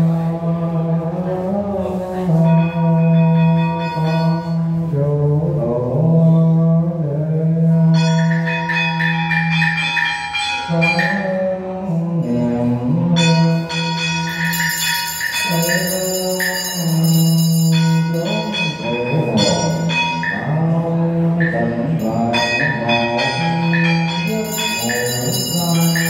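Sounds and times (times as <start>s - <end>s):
monk chanting through microphone: 0.0s - 26.0s
small ritual bells ringing: 1.2s - 26.0s.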